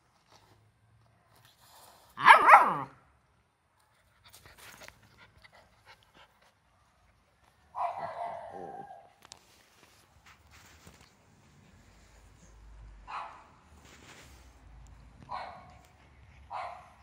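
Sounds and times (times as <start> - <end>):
puppy barking: 2.2 - 3.0, 7.8 - 9.1, 13.1 - 13.5, 15.3 - 15.8, 16.5 - 17.0.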